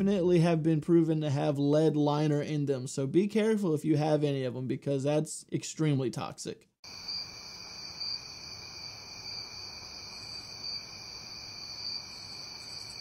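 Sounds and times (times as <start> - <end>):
crickets chirping: 6.8 - 13.0.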